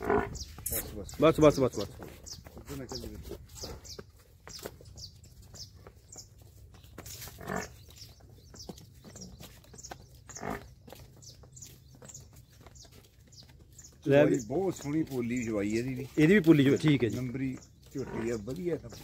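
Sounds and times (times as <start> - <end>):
water buffalo sounds: 0.0 - 4.1, 7.0 - 8.1, 10.2 - 11.1, 14.0 - 19.0
small birds chirping: 0.0 - 19.0.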